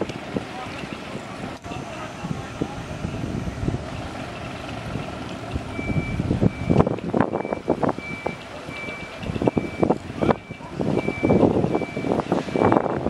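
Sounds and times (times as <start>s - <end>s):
wind noise on microphone: 0.0s - 13.0s
electronic warning beeper: 5.7s - 12.9s.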